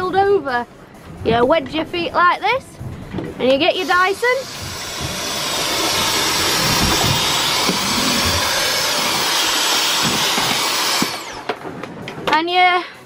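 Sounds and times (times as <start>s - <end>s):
handheld vacuum cleaner running: 3.8s - 11.6s.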